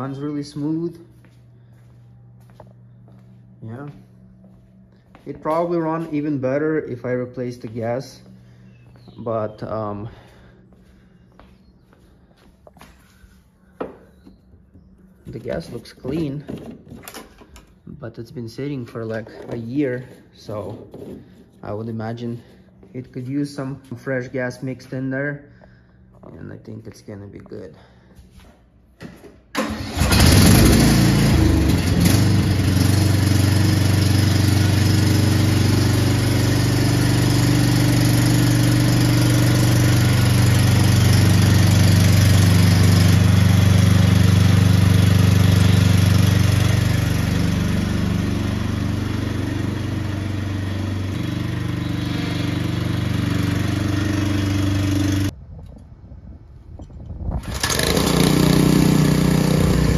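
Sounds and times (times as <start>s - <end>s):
riding mower engine running: 0.0s - 12.4s, 29.6s - 55.4s, 57.4s - 59.9s
pressure washer engine starting: 29.6s - 55.3s, 57.4s - 59.9s.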